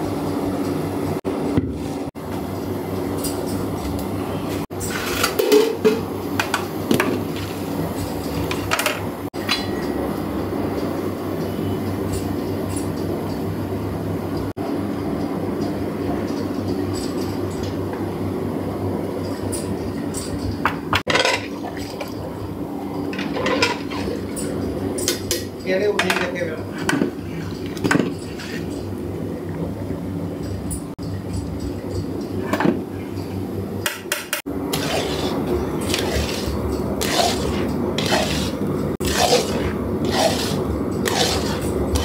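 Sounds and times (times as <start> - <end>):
metal ladles clinking on pots: 4.8 - 6.6, 23.1 - 27.0.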